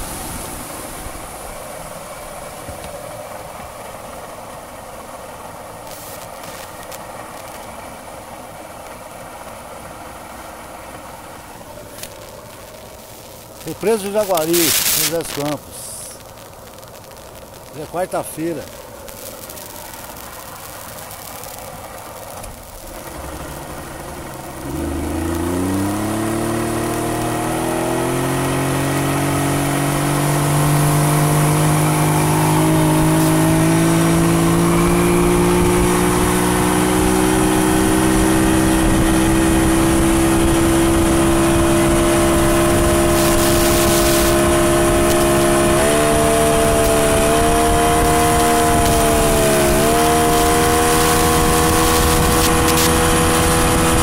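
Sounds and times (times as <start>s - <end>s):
water rushing past: 0.0s - 3.8s, 28.6s - 54.0s
outboard motor revving: 22.8s - 54.0s.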